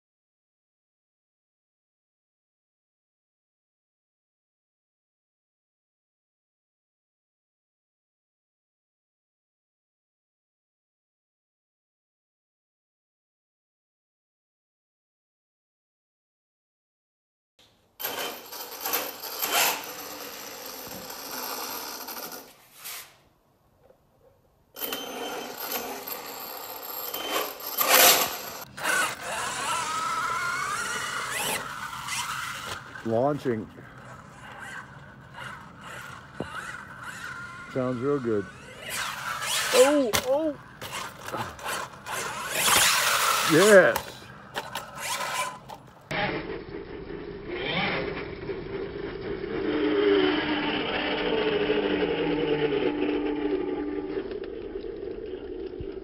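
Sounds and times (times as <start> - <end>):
electric motors whining: 18.0 - 22.5, 24.8 - 56.0
tyres on dirt: 27.0 - 56.0.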